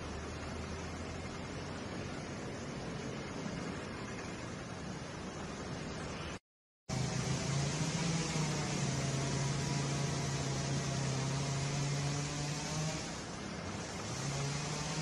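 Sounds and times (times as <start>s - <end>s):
constant hiss: 0.0s - 15.0s
motor humming: 6.9s - 15.0s.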